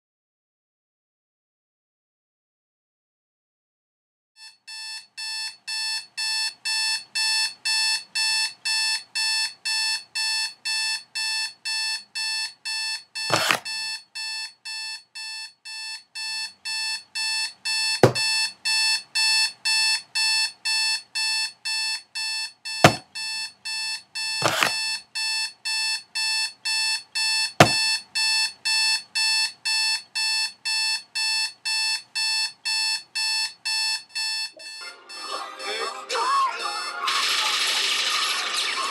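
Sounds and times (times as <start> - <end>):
digital alarm clock beeping: 4.4 - 38.7
sharp knocks: 13.3 - 13.6, 18.0 - 18.3, 22.8 - 23.1, 24.4 - 24.8, 27.6 - 27.9.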